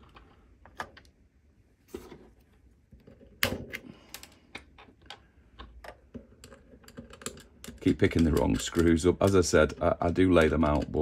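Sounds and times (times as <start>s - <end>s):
metal screws clicking and knocking: 4.1s - 11.0s.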